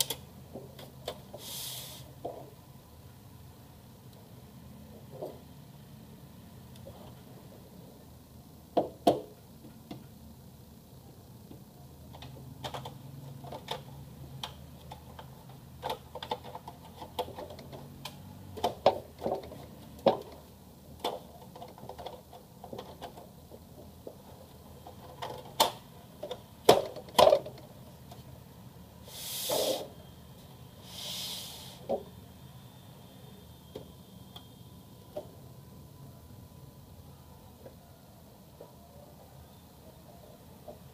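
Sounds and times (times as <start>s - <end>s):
hissing scrape: 1.4s - 2.1s, 29.0s - 30.0s, 30.8s - 31.8s.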